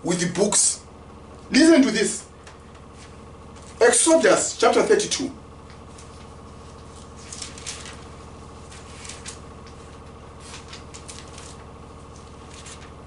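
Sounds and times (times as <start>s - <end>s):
low electrical hum: 0.0s - 13.0s
thin pages rustling: 5.8s - 13.0s.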